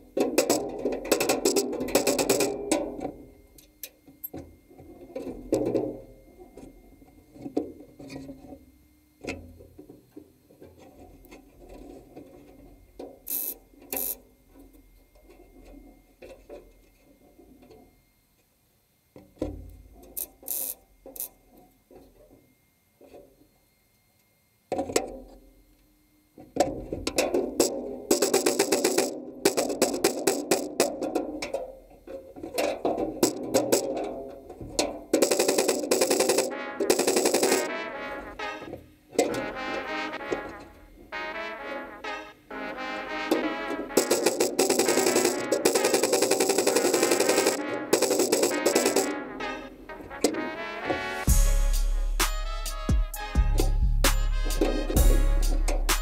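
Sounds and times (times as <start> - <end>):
music with percussive beat: 35.2 - 37.7, 43.3 - 49.6, 50.9 - 56.0.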